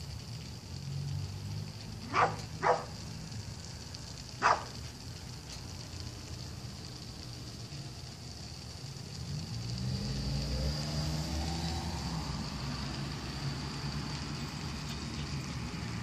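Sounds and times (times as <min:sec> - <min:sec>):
dog barking: 0:02.1 - 0:03.0, 0:04.4 - 0:04.8.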